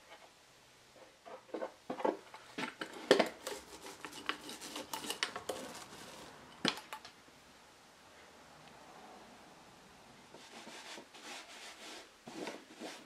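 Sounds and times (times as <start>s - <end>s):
roller spreading sticky glue: 3.1s - 6.4s.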